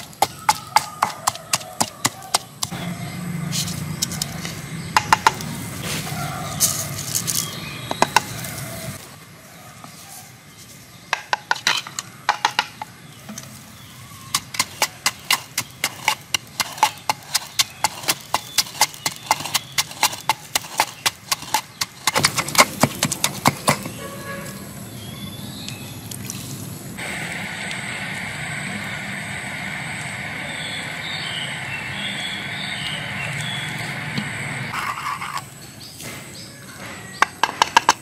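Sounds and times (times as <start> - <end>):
wooden pestle pounding in mortar: 0.0 - 2.9, 3.9 - 5.5, 14.3 - 24.0.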